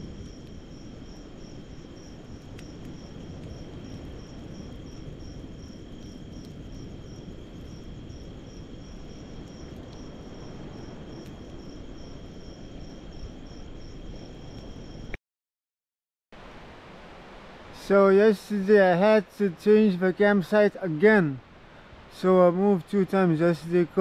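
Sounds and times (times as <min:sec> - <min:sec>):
insect pulsing chirp: 0:00.0 - 0:15.2.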